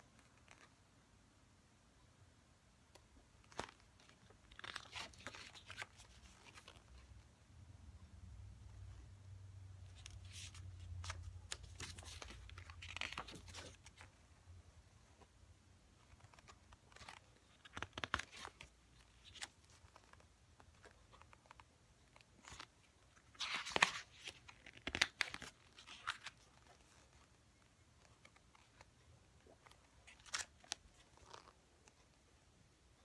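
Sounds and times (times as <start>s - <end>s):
pages turning and rustling: 0.2s - 0.8s, 2.9s - 7.2s, 9.8s - 14.3s, 16.0s - 32.1s.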